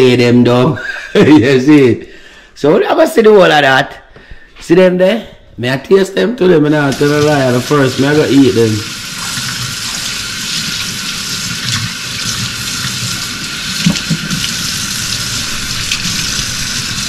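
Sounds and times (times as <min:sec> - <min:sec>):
faucet running into sink: 0:06.8 - 0:17.0
water splashing off vegetables: 0:06.9 - 0:17.0.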